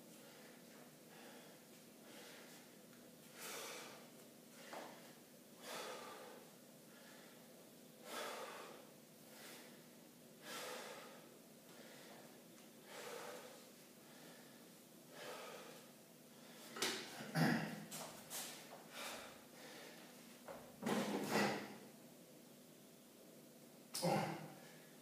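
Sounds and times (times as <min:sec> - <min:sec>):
faint steady hum: 0:00.0 - 0:25.0
man breathing noisily: 0:00.1 - 0:16.8, 0:18.7 - 0:20.1.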